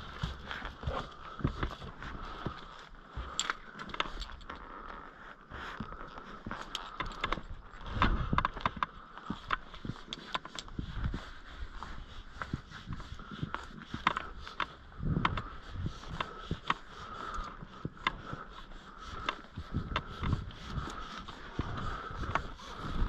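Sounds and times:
rope running through belay device: 0:09.3 - 0:23.0.

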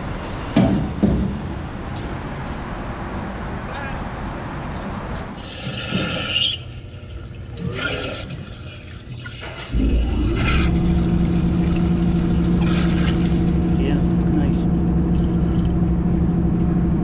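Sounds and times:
water rushing into strainer: 0:05.4 - 0:14.0
low hum: 0:08.5 - 0:17.0.

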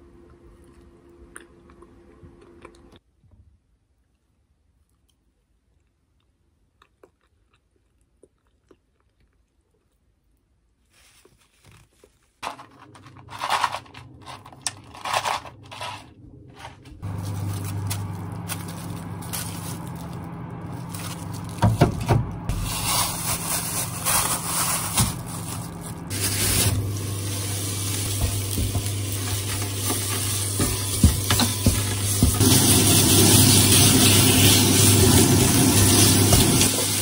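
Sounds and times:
handling knocks and rustles: 0:10.9 - 0:26.9, 0:28.0 - 0:32.4
steady low hum: 0:12.4 - 0:36.8
meat sizzling in a pan: 0:26.1 - 0:37.0.

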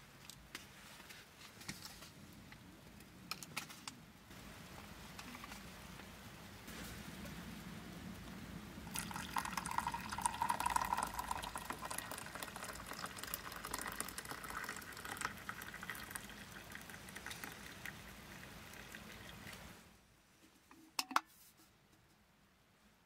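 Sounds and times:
water pouring into a mug: 0:08.9 - 0:19.7.

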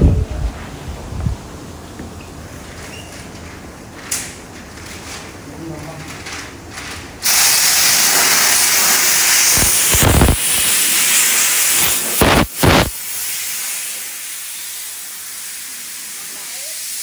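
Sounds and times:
compressed air gun hissing: 0:07.2 - 0:17.0.

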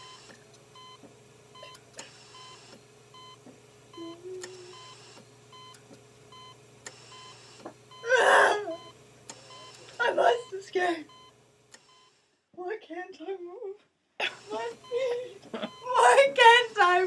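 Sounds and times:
faint electronic beeping: 0:02.4 - 0:08.1, 0:08.8 - 0:12.2.

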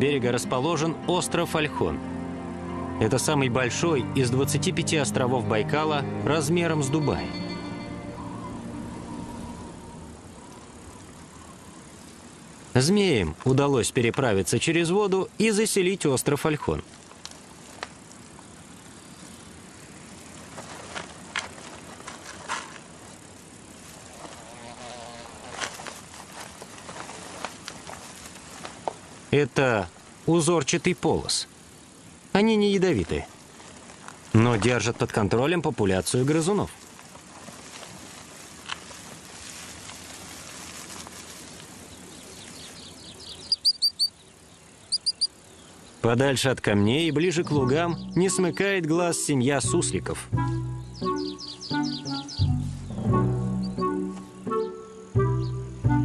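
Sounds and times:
faint outdoor hiss: 0:00.0 - 0:56.0
insect buzzing: 0:07.3 - 0:12.8, 0:16.9 - 0:29.3, 0:31.5 - 0:32.7, 0:36.8 - 0:46.0, 0:50.2 - 0:56.0
soft rustles and scrapes: 0:20.4 - 0:24.6, 0:25.2 - 0:29.2, 0:36.0 - 0:42.8
short high-pitched chirps: 0:43.5 - 0:44.1, 0:44.9 - 0:45.3.

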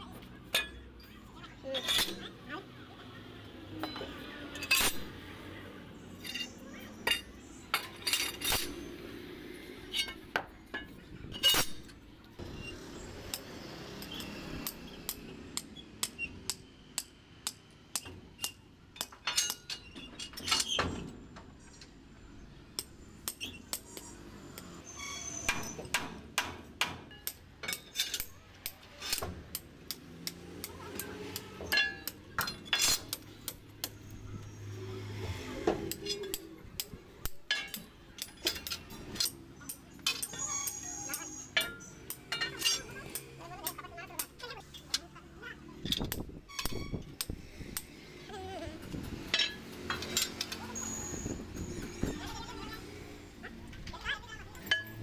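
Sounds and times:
metallic clinks and knocks: 0:06.2 - 0:08.8, 0:17.9 - 0:22.0, 0:27.0 - 0:30.1, 0:30.9 - 0:34.5, 0:35.8 - 0:45.1, 0:48.9 - 0:52.6.

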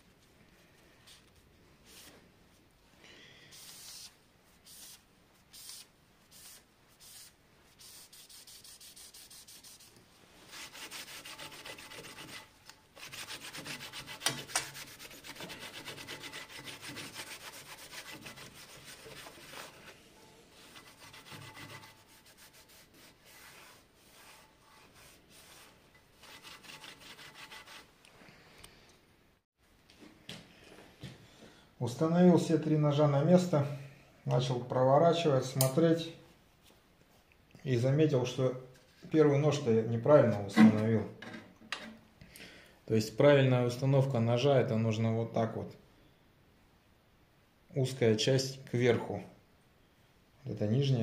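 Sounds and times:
cloth rag rubbing on metal: 0:03.6 - 0:27.9.

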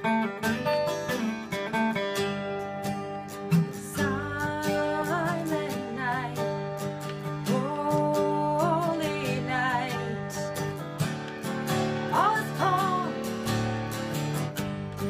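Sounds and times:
acoustic guitars playing chords: 0:00.0 - 0:15.0
woman singing: 0:03.6 - 0:10.8, 0:12.0 - 0:13.5.

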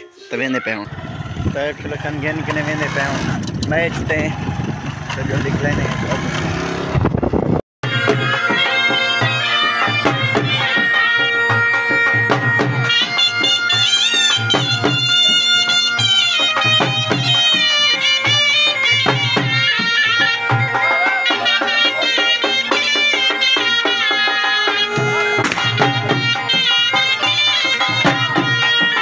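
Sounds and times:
bending wind instrument melody: 0:00.0 - 0:03.3, 0:07.8 - 0:29.0
folk music: 0:00.0 - 0:03.7, 0:07.8 - 0:29.0
steady drum rhythm: 0:07.8 - 0:29.0.

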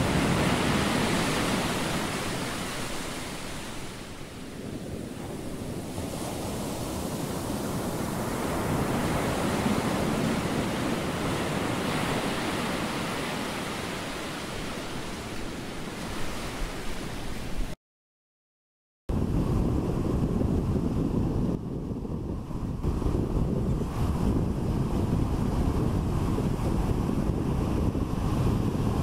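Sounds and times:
ocean surf breaking: 0:00.0 - 0:17.8.

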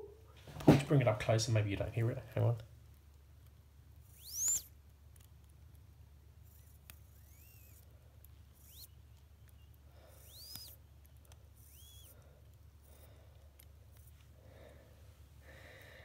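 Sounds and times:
watch movement squeaks: 0:04.0 - 0:04.8, 0:06.4 - 0:13.0
soft clicks: 0:06.4 - 0:12.7.

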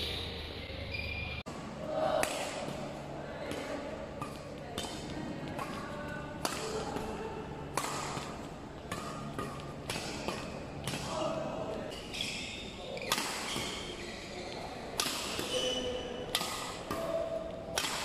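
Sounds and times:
racket hitting shuttlecock: 0:01.5 - 0:18.0
sneaker squeaks on court: 0:11.9 - 0:14.7.

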